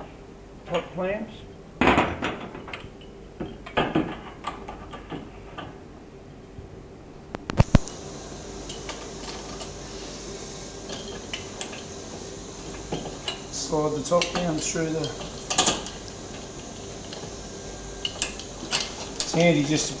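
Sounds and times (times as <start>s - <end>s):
metal parts clicking and clinking: 10.9s - 11.9s, 14.0s - 16.1s, 18.0s - 19.8s.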